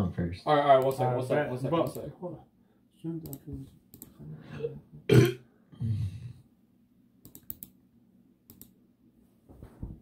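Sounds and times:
keyboard and mouse clicks: 3.2s - 4.2s, 7.2s - 7.8s, 8.5s - 8.8s.

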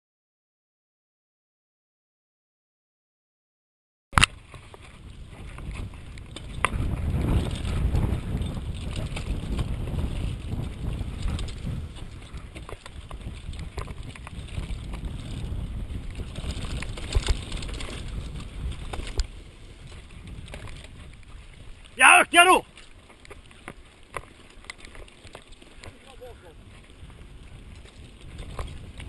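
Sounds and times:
bike tyres rumbling on dirt: 4.2s - 22.0s, 22.6s - 29.0s
wind buffeting microphone: 4.2s - 29.0s.

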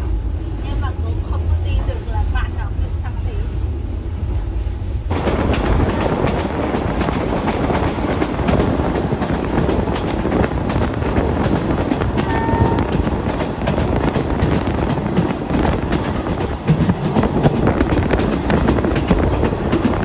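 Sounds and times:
train wheels clattering: 5.1s - 20.0s.

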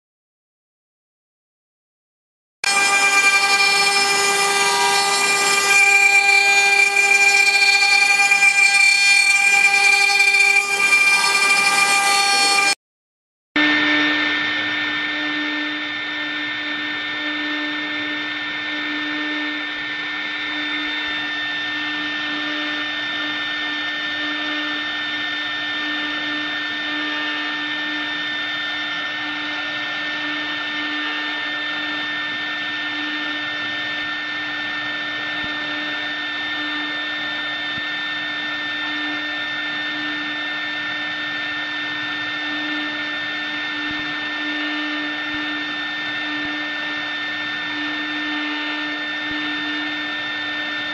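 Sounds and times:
low wavering hum: 2.6s - 12.8s
router spindle high whine: 2.6s - 12.8s, 13.6s - 50.9s.

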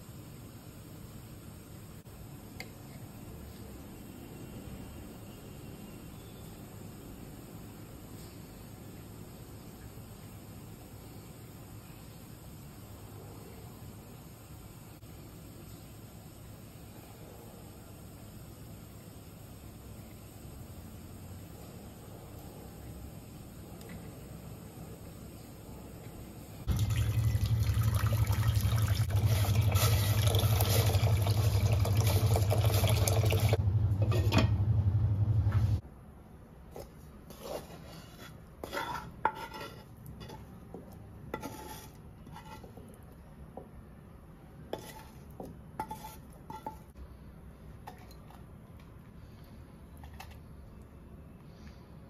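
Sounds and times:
loud steady noise with hum: 33.1s - 36.2s.

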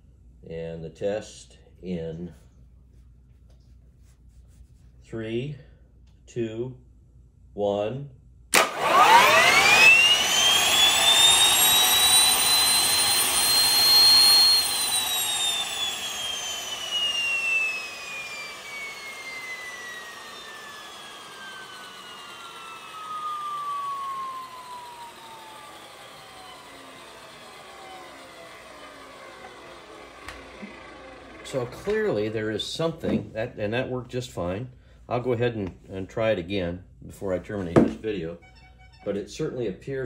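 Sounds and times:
gas turbine engine whining: 8.6s - 33.5s.

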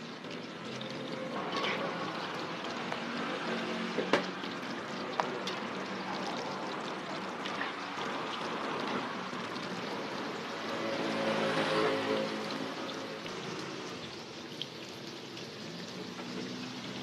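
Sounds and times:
dough deep-frying in oil: 0.0s - 17.0s.

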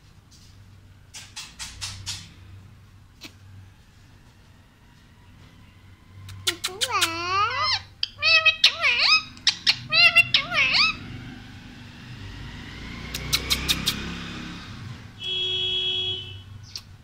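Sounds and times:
passing vehicle rumble: 0.0s - 17.0s
high-pitched chattering calls: 6.3s - 11.0s, 13.2s - 14.0s.

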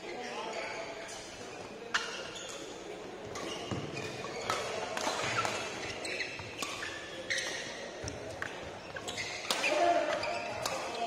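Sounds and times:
shoes squeaking on court: 0.0s - 11.0s
rackets hitting shuttlecock: 3.3s - 8.7s, 9.3s - 11.0s.

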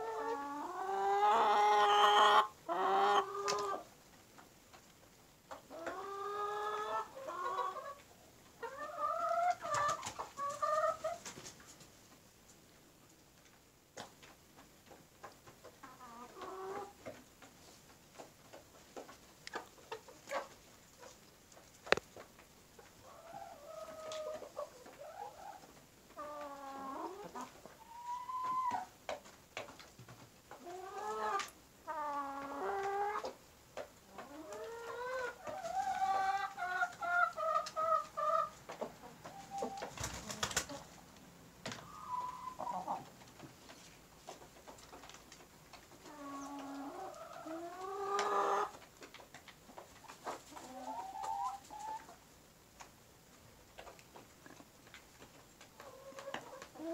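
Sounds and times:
chickens squawking: 0.0s - 3.9s, 5.5s - 8.0s, 8.6s - 11.5s, 23.0s - 28.9s, 30.5s - 33.4s, 34.1s - 41.0s, 41.8s - 43.1s, 46.0s - 48.8s, 50.0s - 52.2s
hens clucking: 0.0s - 12.1s, 14.0s - 52.3s, 53.7s - 56.9s.

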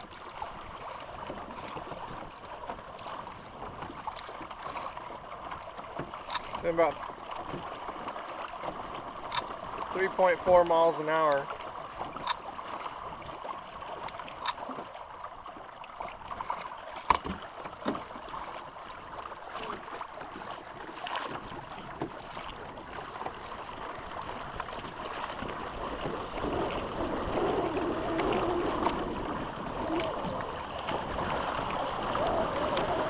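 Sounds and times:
water lapping against hull: 0.0s - 33.0s
wind on microphone: 23.9s - 33.0s.

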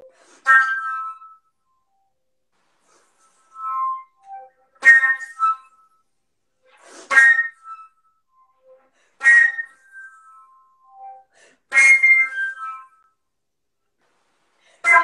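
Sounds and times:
flute notes: 2.9s - 13.1s.

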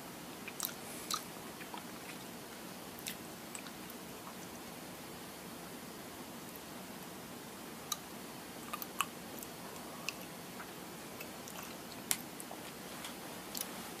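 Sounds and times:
faint steady hiss: 0.0s - 14.0s
person chewing: 0.4s - 2.3s, 3.0s - 4.4s, 8.6s - 10.3s, 11.2s - 12.2s.

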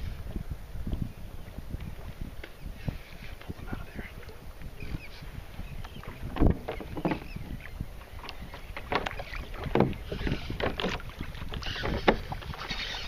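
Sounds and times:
wind rumbling on microphone: 0.0s - 13.0s
water slapping against kayak hull: 5.8s - 13.0s.

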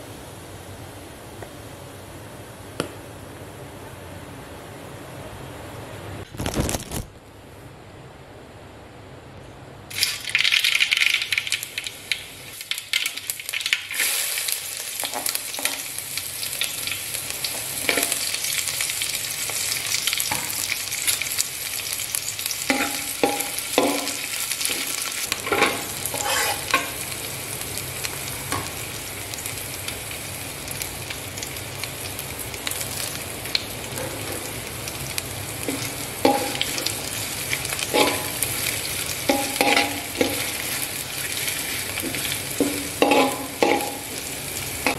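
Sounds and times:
hot oil sizzling and popping: 9.9s - 44.9s
metal spatula scraping pan: 25.5s - 26.8s, 41.4s - 44.0s.

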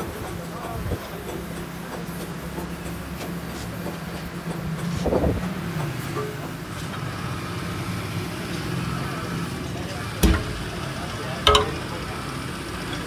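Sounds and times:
low engine drone: 3.8s - 13.0s
heavy metal clank: 10.2s - 13.0s.

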